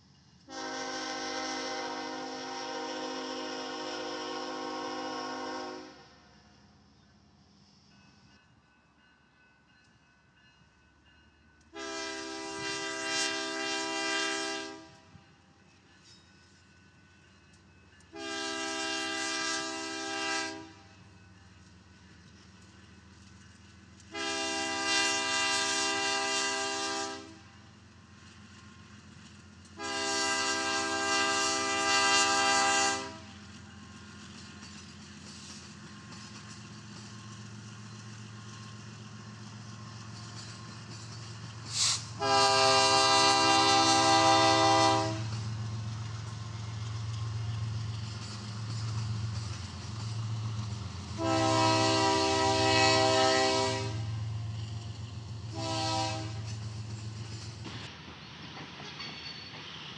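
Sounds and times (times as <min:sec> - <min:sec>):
train rumble: 0:00.0 - 0:59.9
locomotive air horn blasts: 0:00.5 - 0:06.2, 0:11.7 - 0:15.1, 0:18.1 - 0:20.9, 0:24.1 - 0:27.5, 0:29.8 - 0:33.4, 0:41.8 - 0:45.3, 0:51.2 - 0:54.2, 0:55.5 - 0:56.5.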